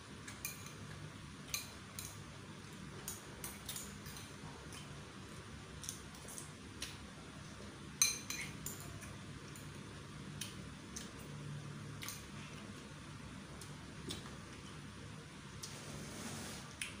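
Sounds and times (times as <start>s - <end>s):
metal spoon clinking on bowl: 0.4s - 0.8s, 8.0s - 9.0s.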